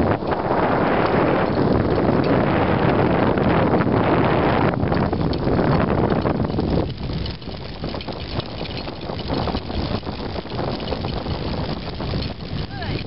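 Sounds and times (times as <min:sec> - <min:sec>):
scooter wheels rolling and rattling: 0:00.0 - 0:13.0
wind buffeting microphone: 0:00.0 - 0:13.0.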